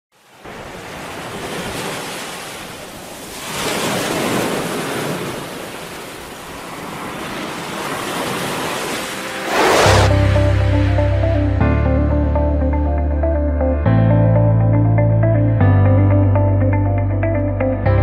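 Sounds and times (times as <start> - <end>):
sea surf washing onto beach: 0.2 - 10.6.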